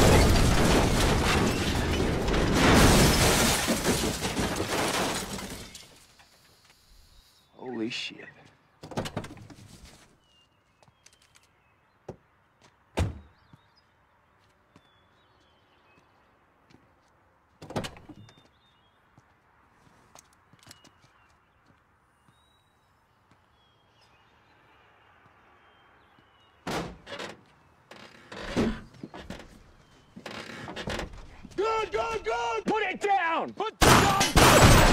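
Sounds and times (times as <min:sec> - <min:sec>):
faint birds chirping: 0:05.6 - 0:32.6.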